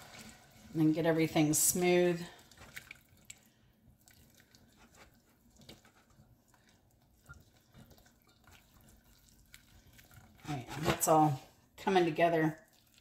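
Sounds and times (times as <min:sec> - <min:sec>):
whisk stirring in saucepan: 0:00.0 - 0:03.5, 0:04.1 - 0:10.4.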